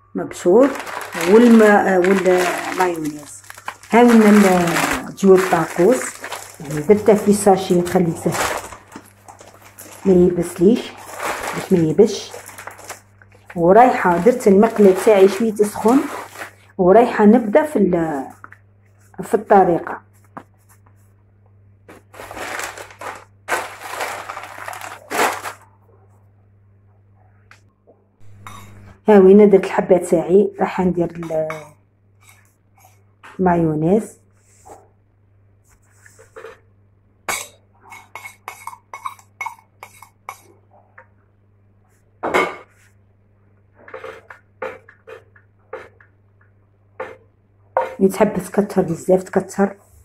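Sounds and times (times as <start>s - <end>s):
plastic bag crinkling: 0.4s - 16.7s, 21.9s - 25.7s
spoon clinking and scraping a pan: 28.3s - 28.9s, 37.3s - 40.5s.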